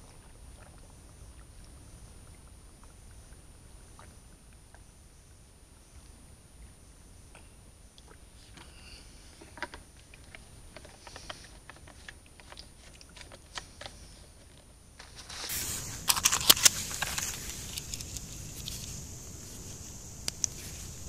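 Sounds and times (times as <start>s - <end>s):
faint ticks and rustles: 0.0s - 21.0s
pellets clicking and rattling: 15.0s - 19.0s.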